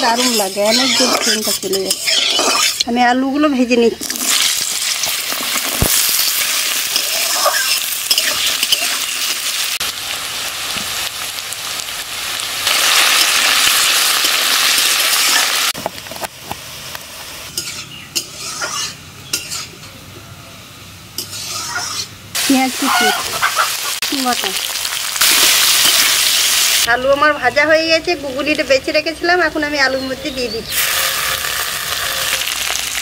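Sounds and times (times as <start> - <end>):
potatoes sizzling in hot oil: 0.0 - 2.6, 4.0 - 18.8, 22.4 - 26.9, 30.7 - 33.0
potatoes being stirred: 0.0 - 2.9, 4.0 - 9.8, 30.7 - 33.0.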